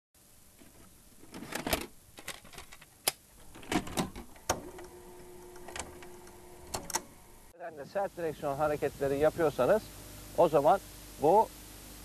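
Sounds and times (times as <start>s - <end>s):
tape mechanism clicks and clunks: 0.6s - 7.3s
steady motor hum: 4.3s - 12.0s.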